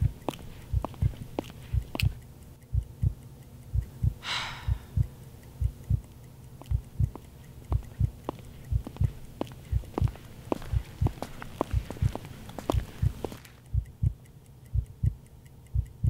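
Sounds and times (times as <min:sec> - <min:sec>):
heartbeat thumps: 0:00.0 - 0:06.1, 0:06.7 - 0:16.0
short breathy hiss: 0:04.2 - 0:05.0.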